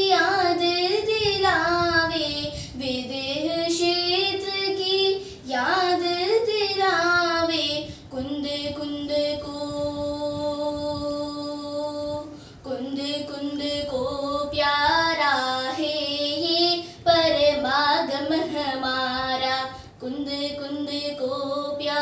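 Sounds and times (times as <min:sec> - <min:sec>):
girl singing unaccompanied: 0:00.0 - 0:22.0.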